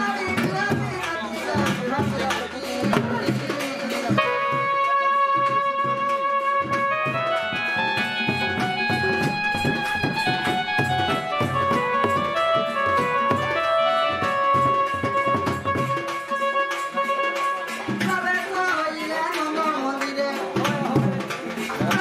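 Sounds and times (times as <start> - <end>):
dhol beating fast rhythm: 0.0 - 22.0
melody instrument long notes: 4.2 - 19.0.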